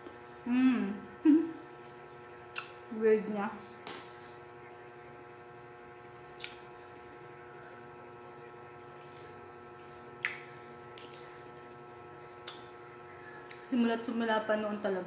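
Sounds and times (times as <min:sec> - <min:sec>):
electrical hum: 0:00.0 - 0:15.0
mouth clicks: 0:02.5 - 0:02.8, 0:06.3 - 0:06.7, 0:10.2 - 0:11.3, 0:12.4 - 0:12.7
person chewing crunchy fruit: 0:06.3 - 0:07.8, 0:08.5 - 0:13.7.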